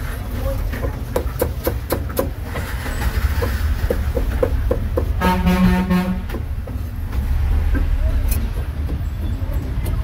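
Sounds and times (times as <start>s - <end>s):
vehicle horn honk: 5.2s - 6.3s.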